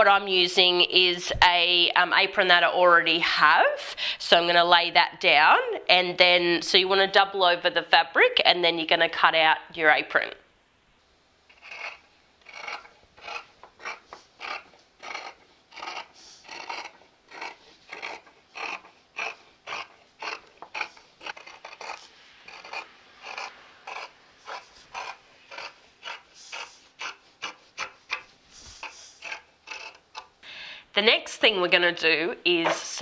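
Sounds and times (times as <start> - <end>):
shears snipping fabric: 11.5 - 30.3.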